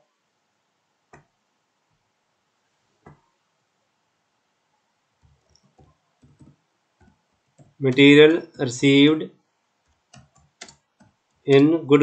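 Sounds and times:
computer mouse clicks: 5.2s - 8.0s, 9.8s - 11.7s
faint keyboard typing: 5.2s - 8.4s, 9.8s - 11.9s.

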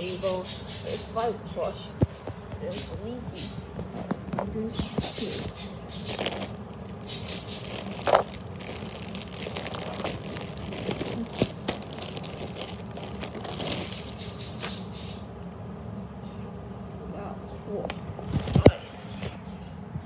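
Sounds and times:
plastic bag crinkling: 5.9s - 14.6s.

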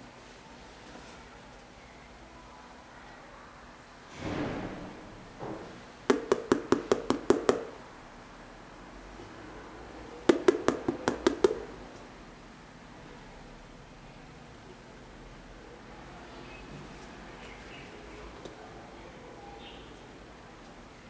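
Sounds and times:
fingers tapping quickly: 6.1s - 7.8s, 10.3s - 11.8s.

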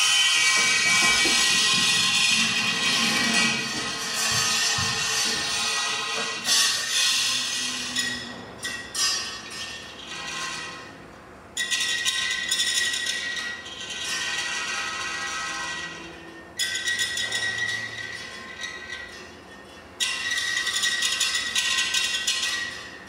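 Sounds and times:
ringing metallic tone: 0.0s - 11.0s
steel wire scraping on concrete: 0.0s - 11.0s, 11.6s - 23.0s.

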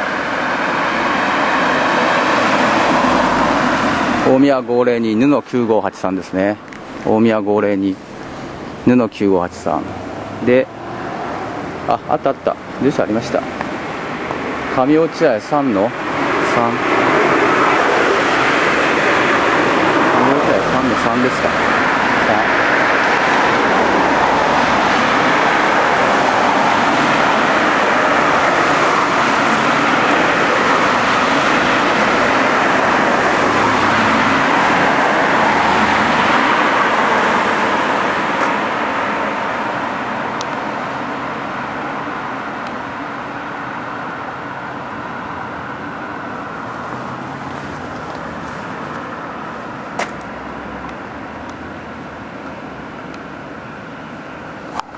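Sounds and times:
road traffic roar: 0.0s - 54.9s
sharp click: 50.0s - 50.3s.

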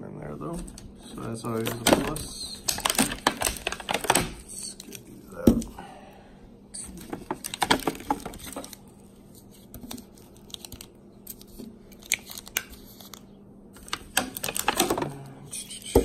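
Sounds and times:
packaging rustling: 1.5s - 5.0s, 6.9s - 13.2s, 13.8s - 15.2s.

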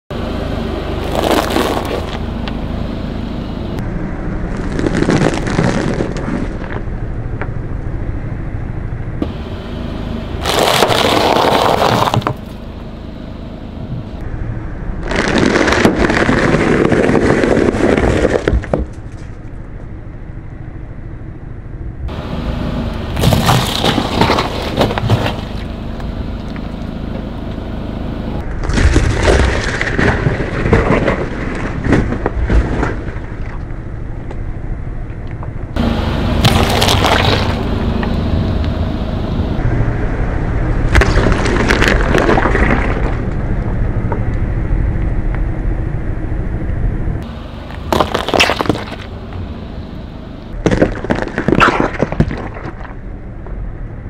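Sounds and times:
car engine running low: 0.1s - 54.0s
tyre crunching food on asphalt: 1.0s - 2.6s, 4.5s - 6.9s, 10.4s - 12.6s, 15.0s - 19.3s, 23.2s - 26.9s, 35.8s - 38.8s, 40.9s - 44.2s, 47.2s - 49.4s, 50.5s - 53.0s.

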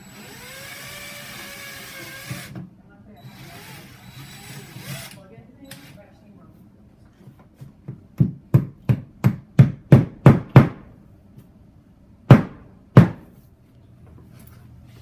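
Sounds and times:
hammer striking wall: 8.2s - 10.9s, 12.3s - 13.3s.

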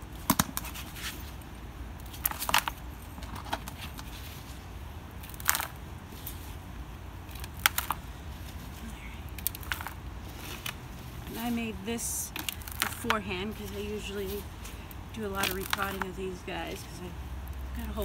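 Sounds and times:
hands digging gritty soil: 7.3s - 18.0s.

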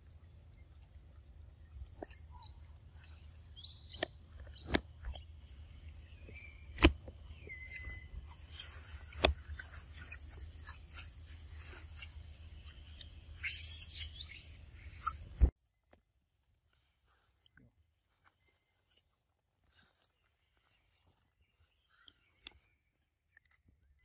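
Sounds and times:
birds chirping: 0.0s - 15.5s, 19.8s - 24.0s
insects calling: 0.0s - 15.5s.

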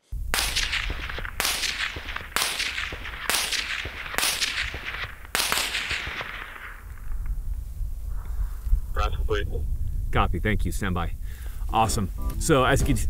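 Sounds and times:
supersonic bullet cracks: 0.3s - 7.4s.

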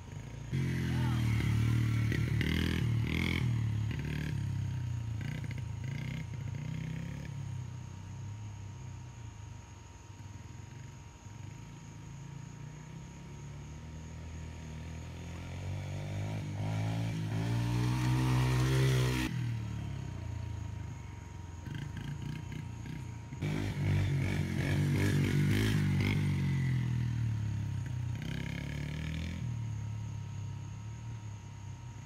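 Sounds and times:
dirt bike engine revving: 0.0s - 7.8s, 13.1s - 30.7s.

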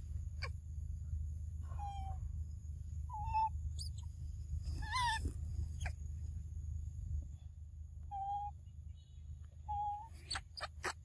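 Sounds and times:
monkey whimpering coo calls: 4.8s - 5.2s.

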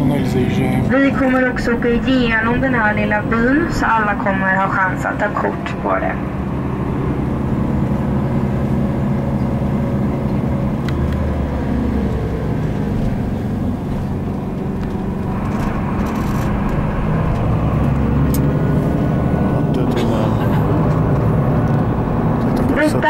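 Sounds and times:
coach engine hum: 0.0s - 23.0s
road noise: 0.0s - 23.0s.

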